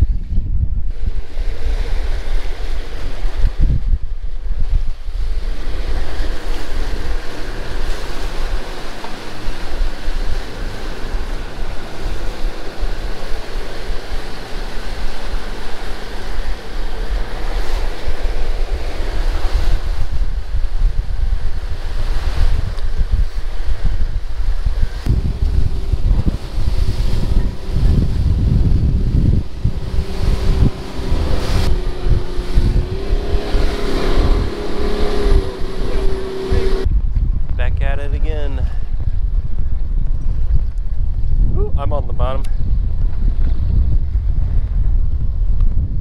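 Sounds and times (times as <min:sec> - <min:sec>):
water rushing past hull: 0:00.0 - 0:36.9
wind buffeting microphone: 0:00.0 - 0:46.0
boat engine hum: 0:00.1 - 0:36.9
faint engine hum: 0:24.7 - 0:36.9.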